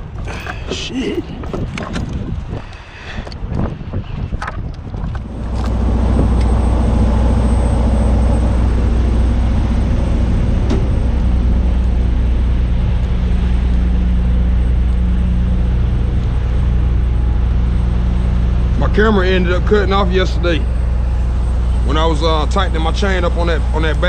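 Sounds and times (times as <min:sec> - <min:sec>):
diesel truck engine idling: 0:05.2 - 0:24.0.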